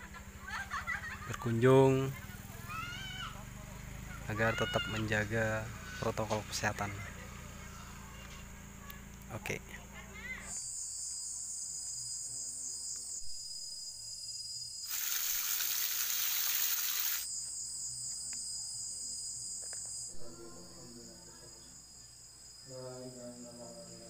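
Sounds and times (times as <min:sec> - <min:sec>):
insects chirring: 0:00.0 - 0:24.0
loud fuller hiss: 0:14.8 - 0:17.3.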